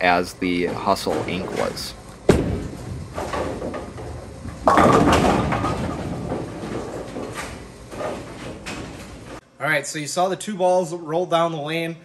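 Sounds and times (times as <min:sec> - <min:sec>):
bowling ball rolling: 0:00.5 - 0:09.4
bowling pins crashing: 0:00.6 - 0:09.4.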